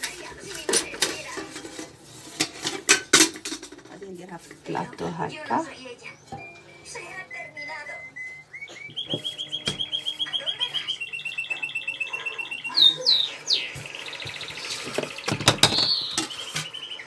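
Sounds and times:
knocks and rustling: 0.0 - 4.6, 13.8 - 16.8
small bird trilling: 6.1 - 17.0.

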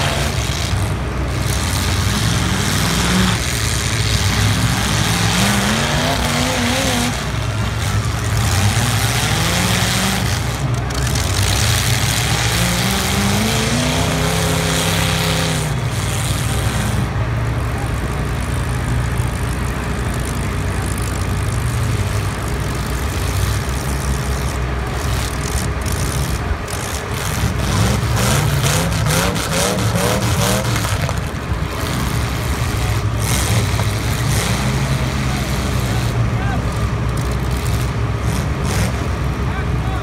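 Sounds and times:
car engines revving: 0.0 - 40.0.

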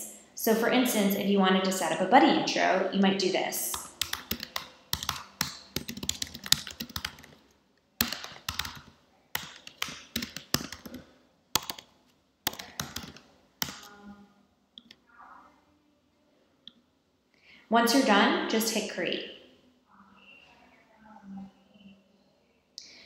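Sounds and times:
typing on a computer keyboard: 3.7 - 7.4, 8.0 - 11.0, 11.6 - 11.9, 12.5 - 14.0.

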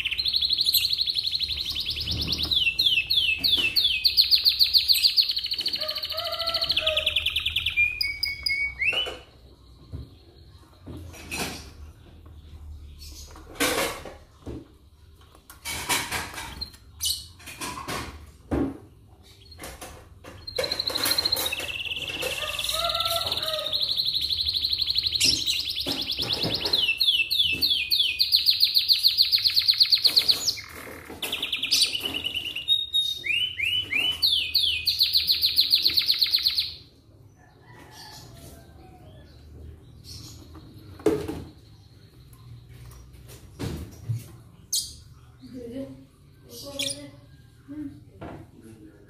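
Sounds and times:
canary singing trills: 0.0 - 10.8, 19.2 - 36.9.

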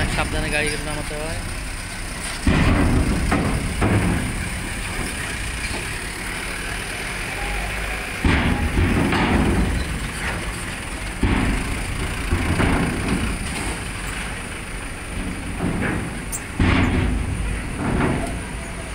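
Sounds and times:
low engine rumble: 0.0 - 18.9
heavy thuds on steel ramp: 2.2 - 6.6, 8.2 - 18.9.

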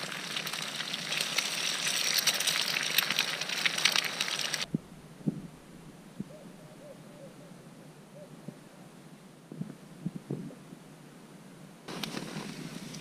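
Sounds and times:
food sizzling in a pan: 0.0 - 4.7.

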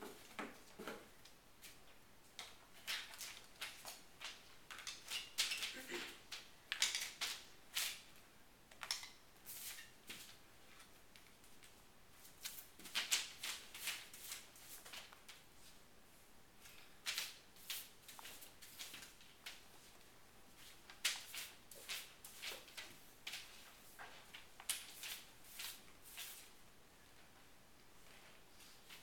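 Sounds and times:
paper rustling: 9.5 - 15.4, 16.6 - 26.6.

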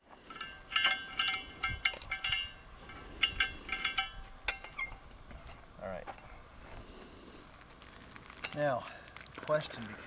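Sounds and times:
metallic clinks on steel cylinder: 0.3 - 5.0.

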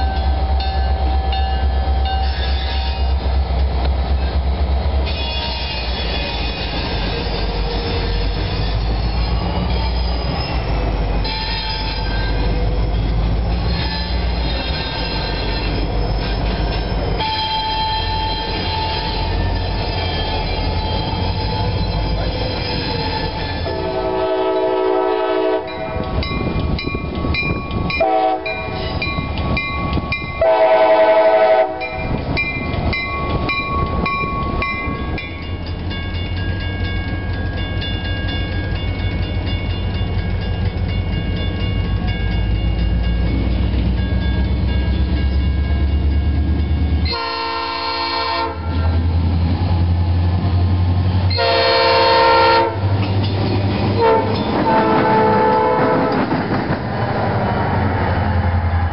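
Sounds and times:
freight train rumble: 0.0 - 58.9
high squealing of wheels: 1.9 - 3.2, 5.0 - 24.0
locomotive air horn blasts: 23.6 - 26.0, 28.0 - 28.8, 30.4 - 32.0, 47.0 - 49.0, 51.3 - 53.0, 54.0 - 56.2.

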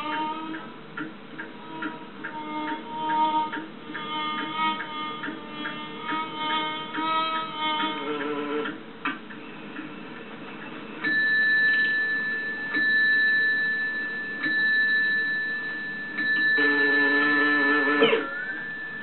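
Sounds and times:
high-pitched cartoon tone: 16.6 - 18.6.

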